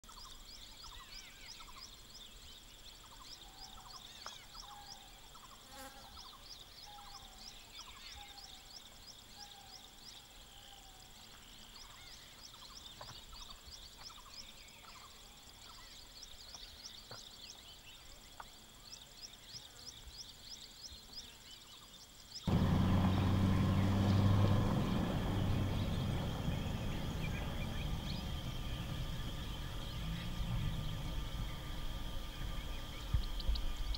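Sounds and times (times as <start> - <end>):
insects chirping: 0.0 - 33.9
loud steady low hum: 22.5 - 33.9.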